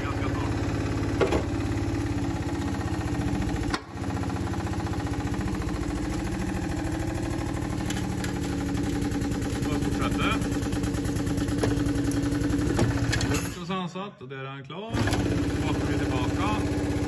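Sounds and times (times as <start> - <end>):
hydraulic pump pulsing: 0.0 - 13.6, 14.9 - 17.0.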